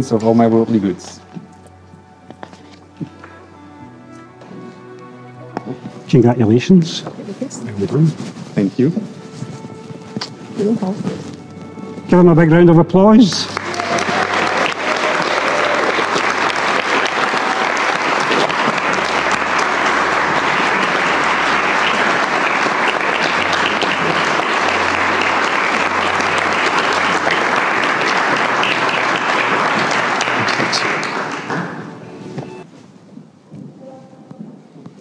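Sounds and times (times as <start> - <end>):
crowd clapping: 12.7 - 32.6.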